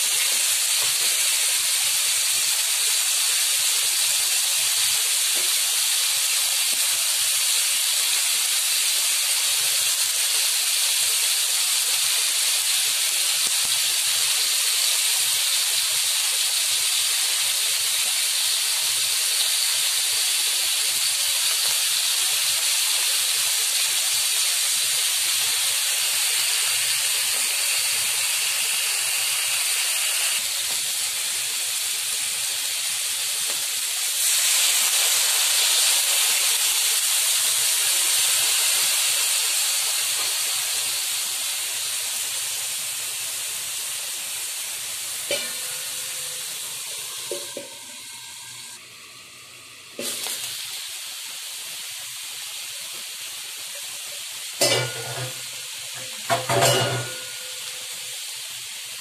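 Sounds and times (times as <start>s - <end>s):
food sizzling in a wok: 0.0s - 59.0s.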